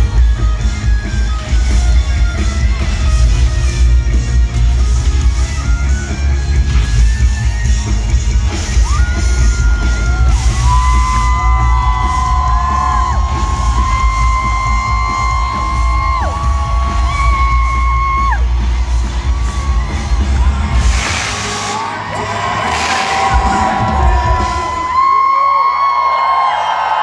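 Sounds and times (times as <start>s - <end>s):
live rock band playing: 0.0s - 25.1s
fans whooping: 7.8s - 27.0s.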